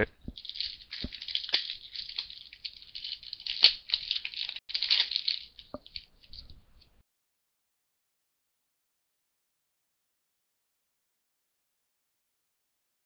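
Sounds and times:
card and packaging clicks: 0.4s - 6.1s
foil wrapper crinkling and tearing: 0.4s - 6.5s.

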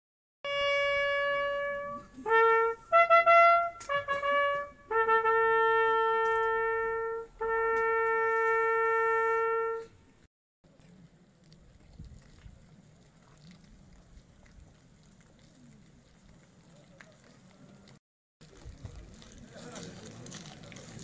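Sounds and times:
solo trumpet playing: 0.4s - 10.1s.

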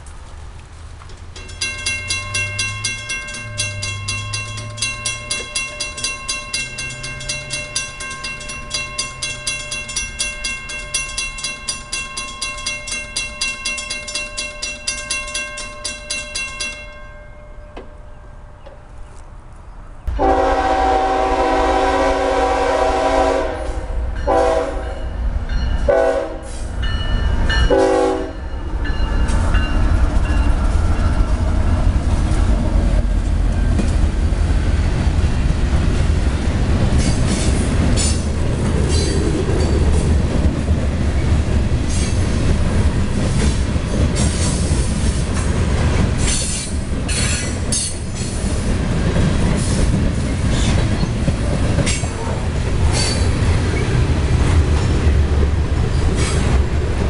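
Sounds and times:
freight train rumbling past: 0.0s - 57.0s
railroad crossing bell ringing: 1.3s - 18.7s, 20.2s - 23.5s, 24.1s - 32.0s, 36.9s - 45.1s, 46.2s - 52.2s
locomotive horn blasts: 20.1s - 25.1s, 25.9s - 26.6s, 27.7s - 28.4s.

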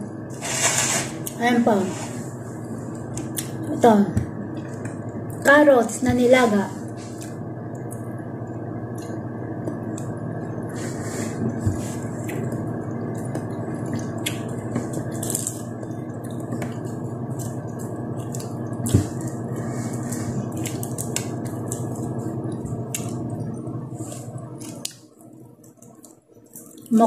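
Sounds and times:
steady low hum: 0.0s - 27.0s
wet chewing: 12.1s - 27.0s.

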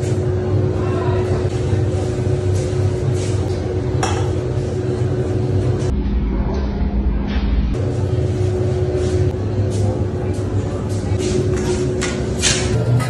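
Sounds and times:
low rumble: 5.0s - 9.7s.

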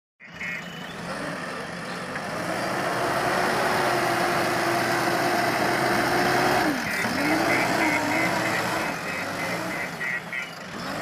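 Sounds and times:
diesel engine working: 0.2s - 11.0s.

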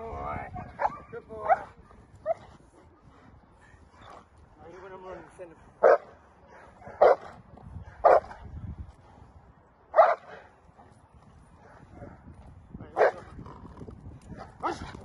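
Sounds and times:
dog barking: 0.6s - 2.4s, 5.8s - 7.3s, 7.9s - 8.3s, 10.0s - 10.4s, 13.0s - 13.2s, 14.6s - 14.9s.

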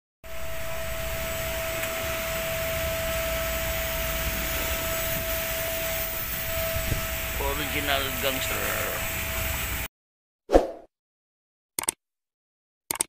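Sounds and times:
machine whining and rumbling: 0.2s - 9.9s.

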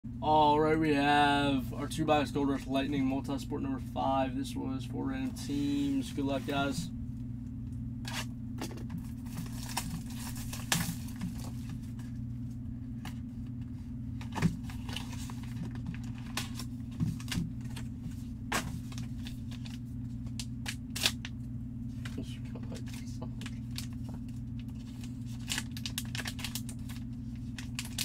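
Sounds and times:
steady low hum: 0.0s - 28.0s
plastic wrap crinkling and tearing: 9.1s - 11.8s, 14.2s - 17.8s, 22.7s - 28.0s.

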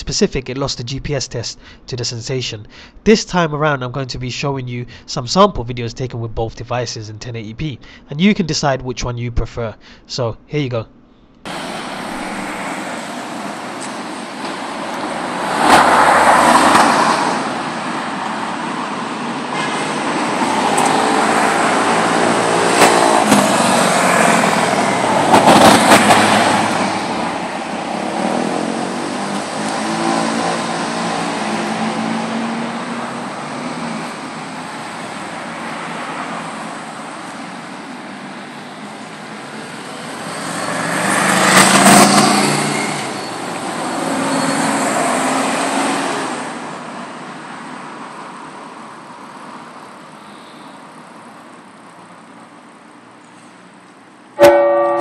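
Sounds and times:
cars passing by: 11.4s - 55.0s.

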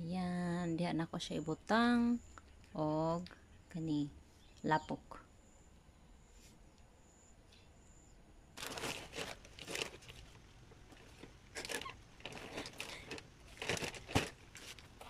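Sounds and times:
plastic bag crinkling: 8.6s - 15.0s.

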